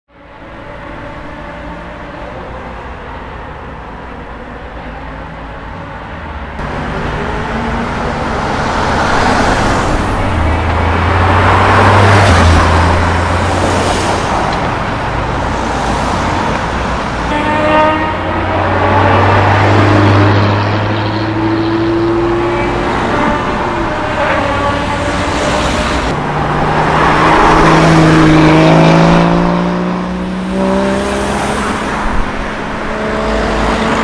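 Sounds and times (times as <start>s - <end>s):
sports car accelerating away: 25.5s - 34.0s.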